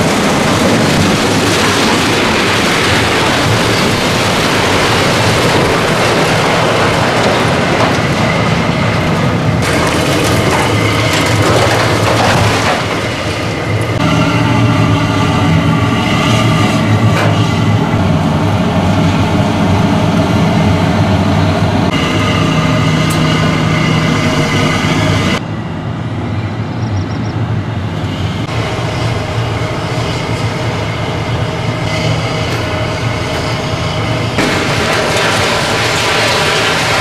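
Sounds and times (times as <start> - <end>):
excavator diesel engine: 0.0 - 37.0
debris crashing down: 0.8 - 8.6, 9.6 - 13.4, 34.4 - 37.0
metal clatter: 9.6 - 13.4, 34.4 - 37.0.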